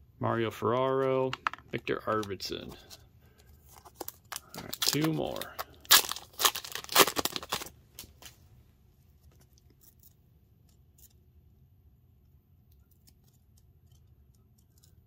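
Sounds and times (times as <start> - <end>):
cards being handled: 0.5 - 8.4
wrapper tearing and crinkling: 3.7 - 8.4.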